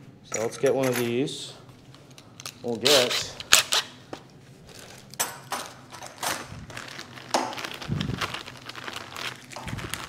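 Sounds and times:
plastic bag rustling: 0:04.4 - 0:10.0.

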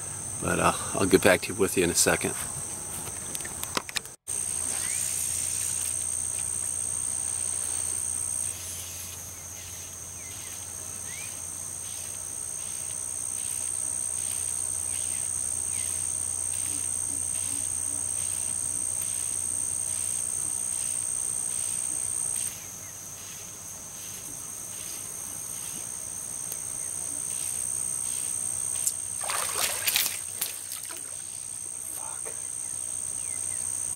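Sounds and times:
insect chorus with pulsing chirp: 0:00.0 - 0:33.9
fish splash at water surface: 0:29.2 - 0:31.3.

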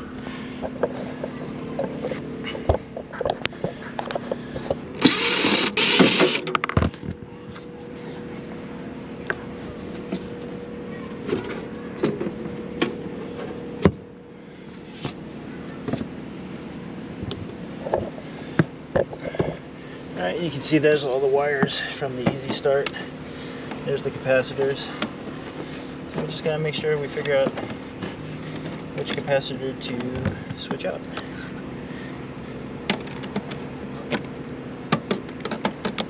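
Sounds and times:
steady low hum: 0:00.0 - 0:36.0
cordless driver whirring: 0:04.0 - 0:06.7.

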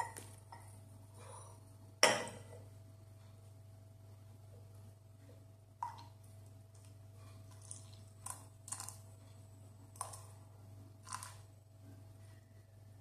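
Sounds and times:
low steady hum: 0:00.0 - 0:13.0
milk pouring into cup: 0:07.5 - 0:09.1, 0:11.0 - 0:11.5.

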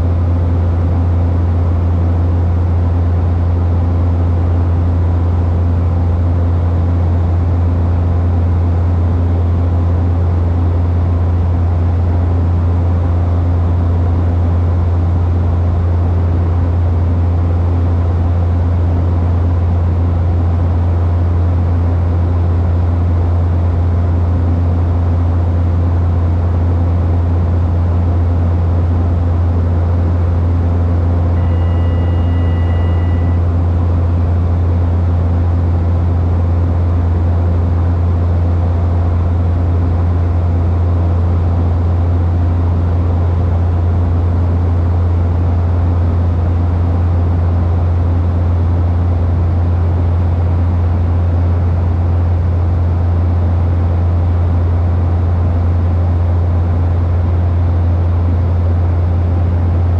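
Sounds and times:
low hum: 0:00.0 - 0:59.9
propeller and engine drone: 0:00.0 - 0:59.9
faint high two-note tone: 0:31.4 - 0:33.5.

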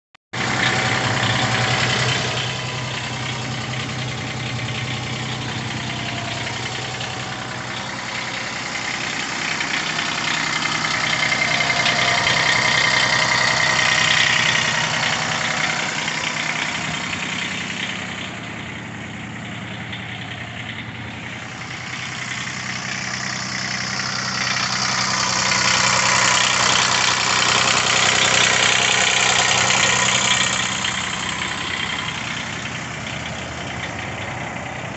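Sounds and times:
diesel engine idling: 0:00.3 - 0:34.9.

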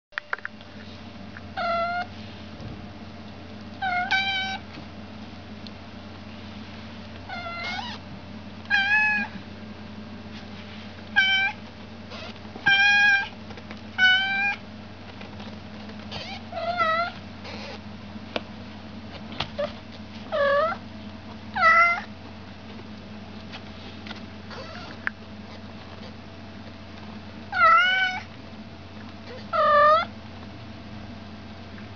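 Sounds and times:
faint steady hum: 0:00.1 - 0:31.9
kittens meowing: 0:01.6 - 0:02.1, 0:03.8 - 0:04.6, 0:07.3 - 0:08.0, 0:08.7 - 0:09.4, 0:11.2 - 0:13.3, 0:14.0 - 0:14.6, 0:16.1 - 0:17.8, 0:19.5 - 0:20.8, 0:21.6 - 0:22.1, 0:24.5 - 0:25.0, 0:27.5 - 0:28.3, 0:29.3 - 0:30.1.

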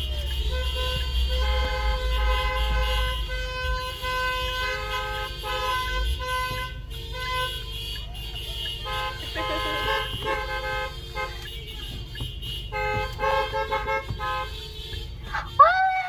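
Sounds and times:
car horns honking: 0:00.0 - 0:16.0.

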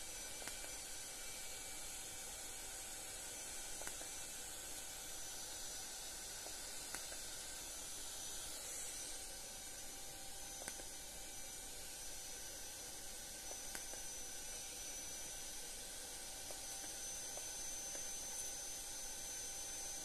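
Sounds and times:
hair-removal device clicking: 0:00.3 - 0:00.9, 0:03.6 - 0:04.3, 0:06.4 - 0:07.4, 0:10.6 - 0:11.1, 0:13.4 - 0:15.4, 0:16.4 - 0:18.5.

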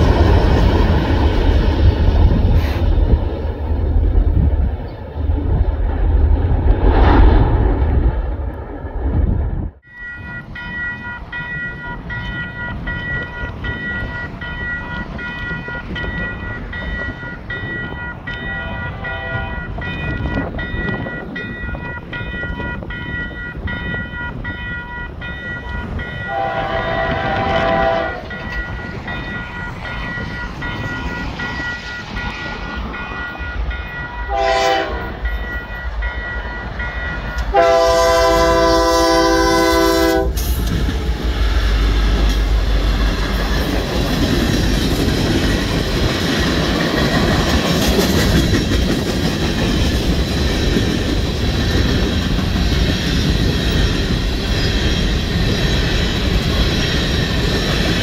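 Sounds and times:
train horn blasts: 0:18.4 - 0:19.7, 0:26.2 - 0:28.4, 0:34.2 - 0:35.3, 0:37.4 - 0:40.5.

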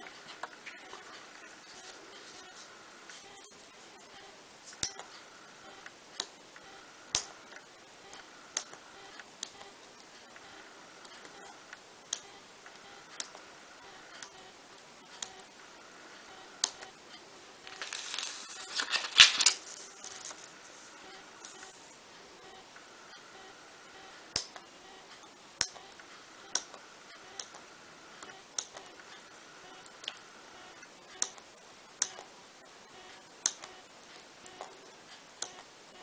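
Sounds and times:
paper rustling and clicking: 0:17.7 - 0:20.5.

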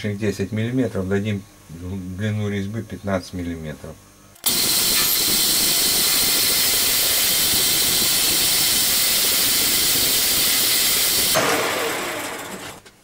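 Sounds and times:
metal lathe running: 0:04.4 - 0:12.8.

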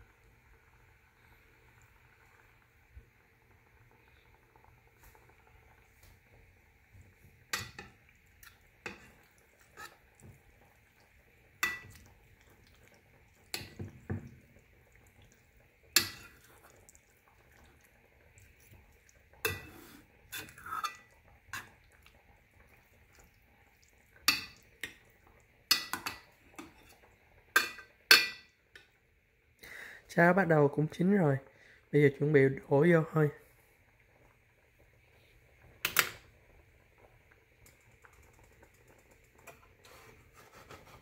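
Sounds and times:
metal spoon scraping cooking pots: 0:08.9 - 0:10.0, 0:19.5 - 0:21.7.

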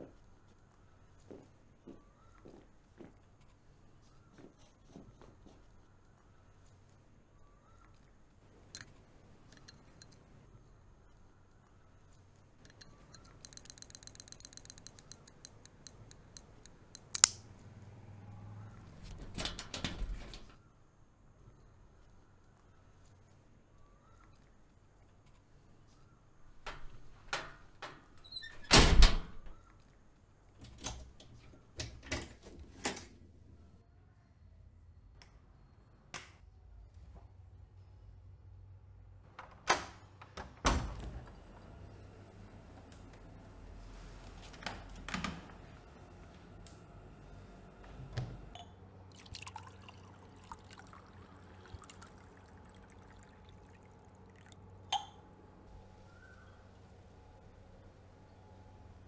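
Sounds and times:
rapid mechanical clicking: 0:12.6 - 0:17.4.

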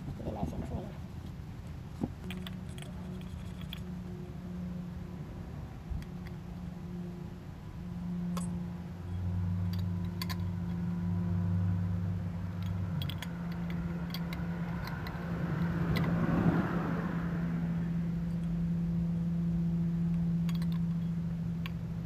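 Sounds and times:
steady low hum: 0:00.0 - 0:22.0
small metal parts clicking and tapping: 0:02.1 - 0:03.9, 0:09.6 - 0:10.8, 0:12.6 - 0:16.2, 0:20.1 - 0:21.8.

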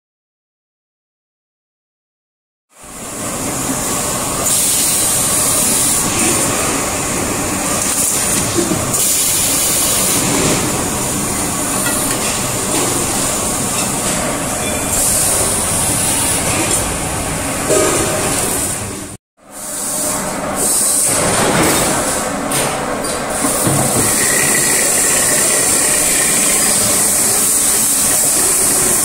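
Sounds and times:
cutting machine running: 0:23.7 - 0:29.0.

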